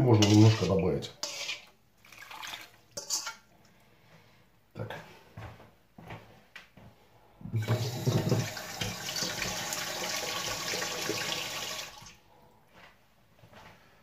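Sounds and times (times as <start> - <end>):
tap water running into container: 2.0 - 2.8, 7.6 - 12.2.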